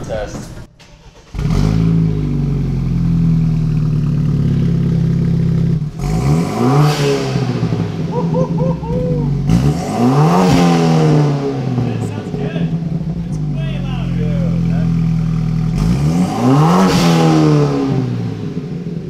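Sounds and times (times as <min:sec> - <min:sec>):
car engine idling and revving: 0:00.3 - 0:19.0.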